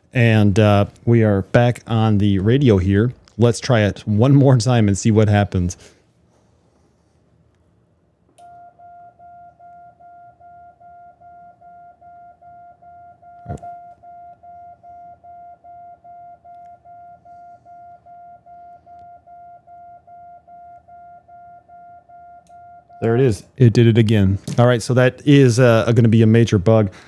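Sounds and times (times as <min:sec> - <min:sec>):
morse code beeps: 0:08.4 - 0:23.2.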